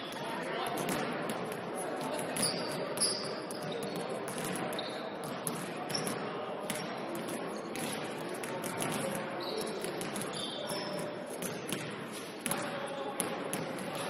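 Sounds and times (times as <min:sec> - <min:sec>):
shoe squeaks: 0:02.4 - 0:05.1, 0:09.4 - 0:11.2.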